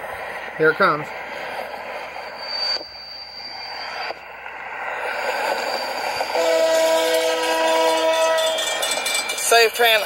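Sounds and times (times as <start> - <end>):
freight locomotive rumble: 0.0 - 10.0
locomotive air horn: 6.3 - 8.8.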